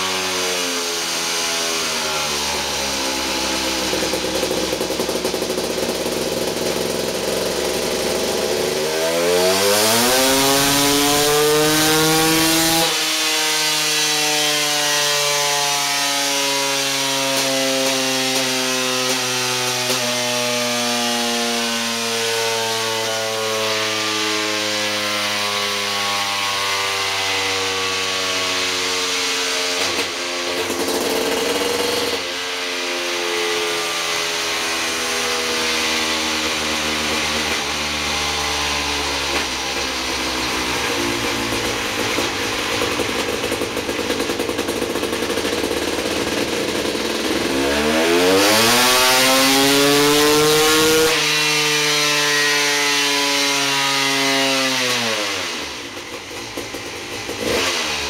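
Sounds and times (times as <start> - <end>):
dyno roller winding down: 0.0 - 20.0, 28.8 - 53.7
two-stroke engine revving: 0.0 - 58.0.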